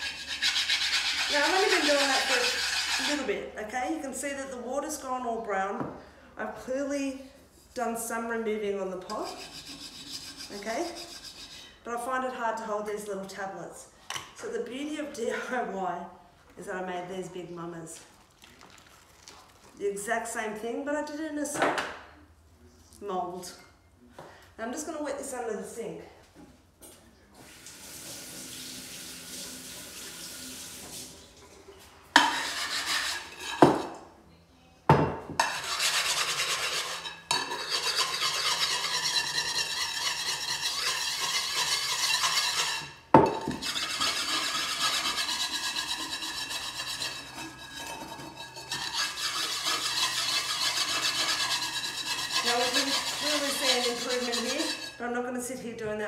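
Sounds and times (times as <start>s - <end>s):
scrubbing metal pot: 0.0s - 3.3s, 9.1s - 11.6s, 32.2s - 33.9s, 35.4s - 55.0s
tap water running: 27.4s - 31.7s.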